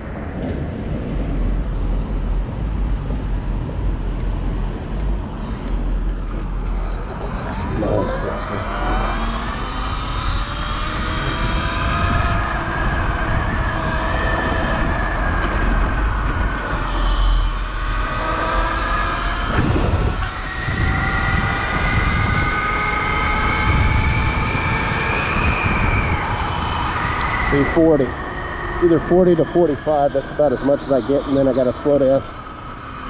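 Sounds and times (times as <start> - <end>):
road rumble: 0.0 - 33.0
wind noise: 0.0 - 33.0
electric motor whine: 3.9 - 33.0.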